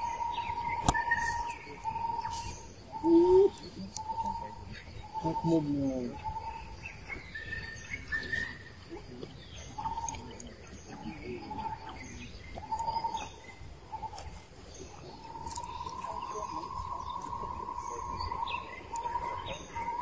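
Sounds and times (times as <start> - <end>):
bird whistling calls: 0.0 - 4.4
faint outdoor hiss: 0.0 - 20.0.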